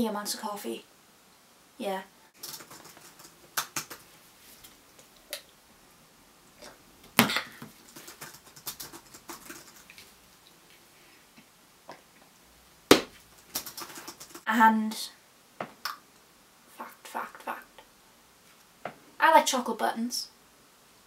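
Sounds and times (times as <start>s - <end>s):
laptop keyboard typing: 2.4s - 4.1s, 7.6s - 9.9s, 13.4s - 14.4s.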